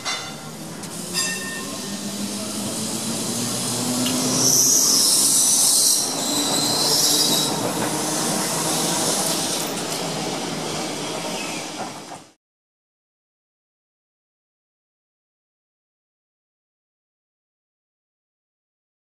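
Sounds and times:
tram rumbling past: 0:00.0 - 0:12.4
tram wheels squealing on rails: 0:00.0 - 0:12.4.

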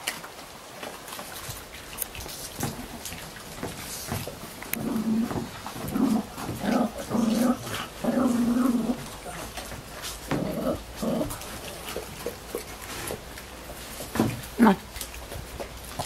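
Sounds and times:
dog growling: 0:04.5 - 0:13.4.

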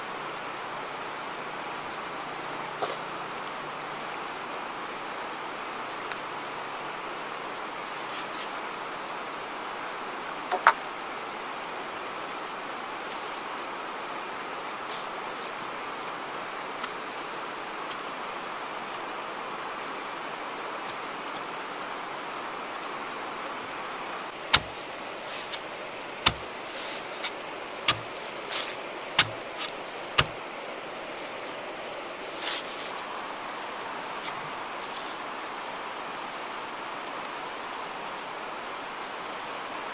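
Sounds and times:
insects droning: 0:00.0 - 0:39.9
bamboo poles knocking: 0:24.4 - 0:25.6, 0:26.2 - 0:28.6, 0:29.2 - 0:30.4.

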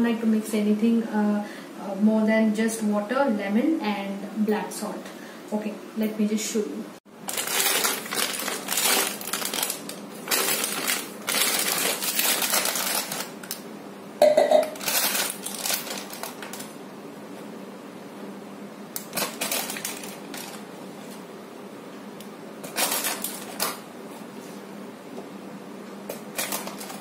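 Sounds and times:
plastic pouch crinkling: 0:07.2 - 0:13.6, 0:14.8 - 0:16.7, 0:19.0 - 0:20.6, 0:22.6 - 0:23.8, 0:26.2 - 0:27.0.

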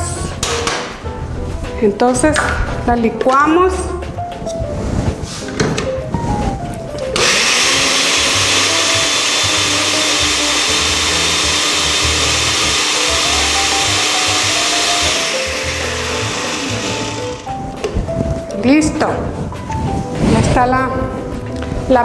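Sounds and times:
blender running: 0:07.2 - 0:17.6.

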